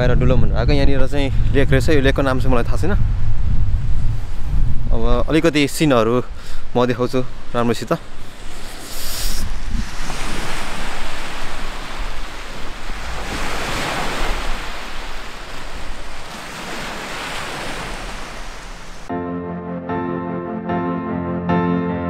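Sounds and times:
wind on microphone: 0.0 - 5.7, 8.0 - 19.1
small waves on gravel shore: 8.2 - 19.1.

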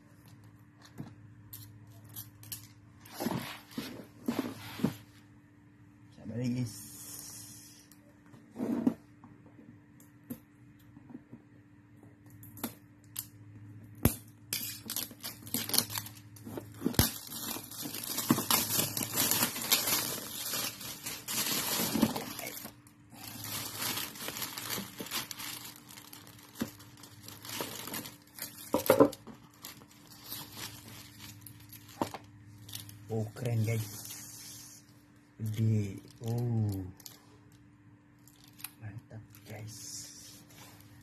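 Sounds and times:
faint steady hum: 0.0 - 41.0
plastic packaging crinkling: 14.6 - 34.3, 38.2 - 38.8.

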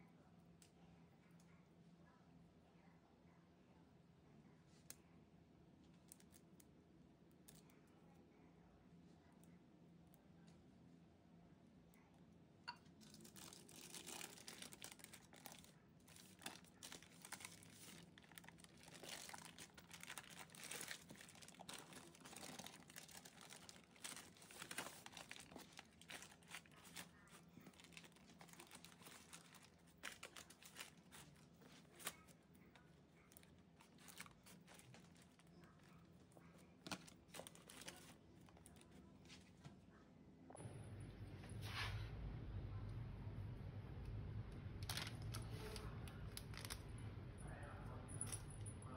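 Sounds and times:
baking paper crinkling: 13.0 - 39.5.

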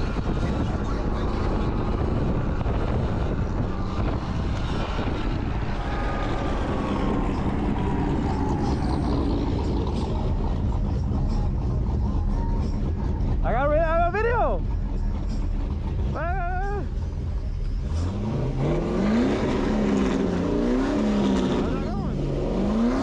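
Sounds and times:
wind rushing over microphone: 0.0 - 10.0
road noise: 0.0 - 23.0.

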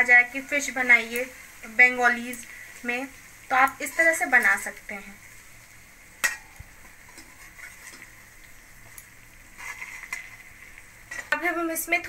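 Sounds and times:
hot oil sizzling: 0.0 - 12.0
metal spoon scraping pan: 3.7 - 4.6, 6.2 - 8.1, 9.6 - 10.4, 11.1 - 11.4.

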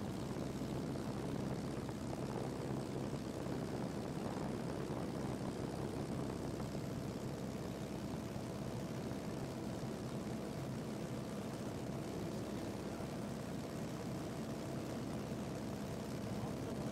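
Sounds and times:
propeller plane engine droning: 0.0 - 16.9.

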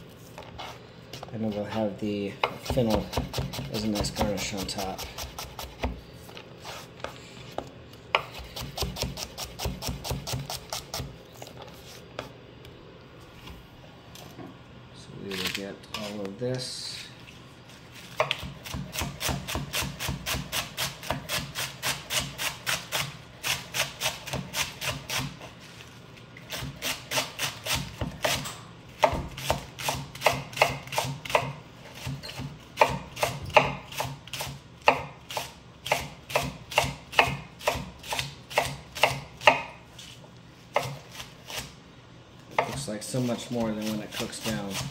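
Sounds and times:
knife chopping on cutting board: 2.4 - 6.0, 8.1 - 11.1, 18.2 - 25.5, 26.5 - 28.4, 29.0 - 39.8, 40.7 - 41.7, 42.5 - 42.9, 43.5 - 44.9.

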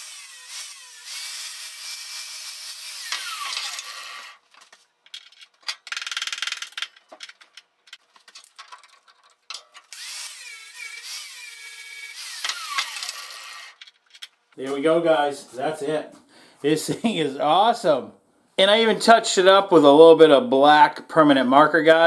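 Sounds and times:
angle grinder grinding metal: 0.0 - 4.4, 9.8 - 13.8.

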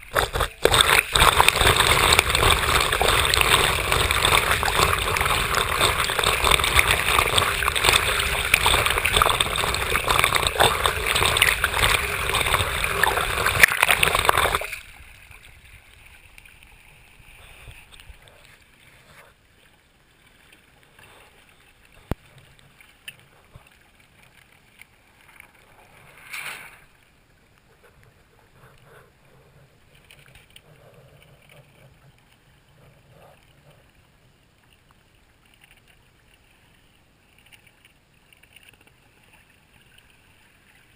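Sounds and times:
water rushing and splashing: 0.0 - 28.3.

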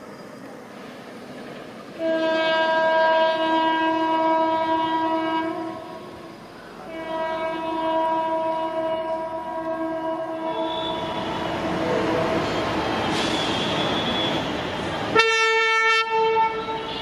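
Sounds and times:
locomotive air horn blasts: 2.0 - 6.0, 6.9 - 12.5, 15.1 - 17.0.

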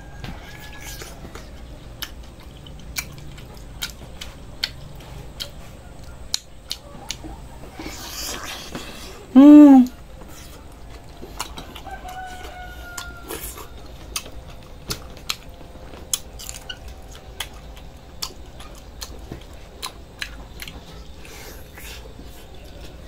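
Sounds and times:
wet chewing and lip-smacking: 0.5 - 9.2, 9.9 - 23.0.

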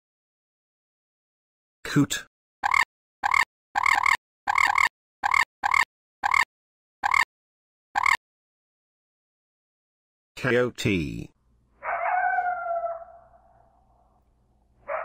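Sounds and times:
coot squawking: 2.6 - 7.3, 8.0 - 8.2, 11.9 - 13.4.

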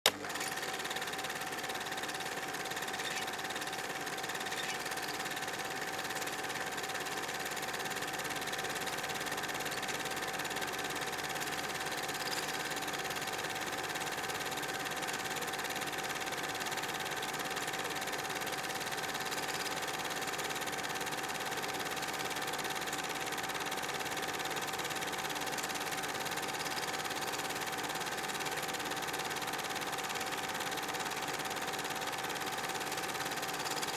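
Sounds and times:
film projector whirring: 0.1 - 33.9.

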